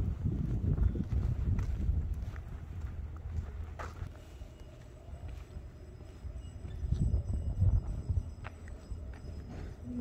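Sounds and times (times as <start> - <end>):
footsteps on gravel: 0.0 - 6.3.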